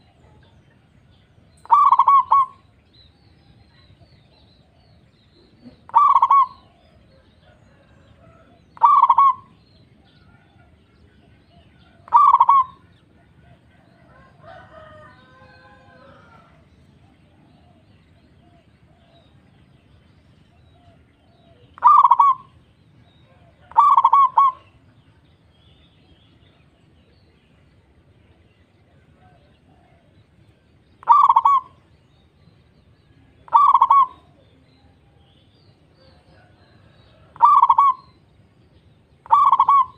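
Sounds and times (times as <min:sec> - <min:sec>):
dove cooing: 0:01.6 - 0:02.7, 0:05.4 - 0:10.8, 0:11.5 - 0:19.4, 0:20.6 - 0:22.6, 0:23.2 - 0:24.8, 0:31.0 - 0:31.9, 0:33.4 - 0:35.2, 0:36.0 - 0:38.2, 0:39.2 - 0:39.9.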